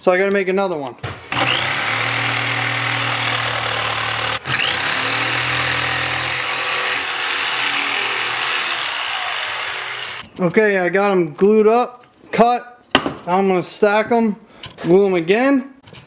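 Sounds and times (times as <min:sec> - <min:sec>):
jigsaw cutting plywood: 0:01.2 - 0:10.2.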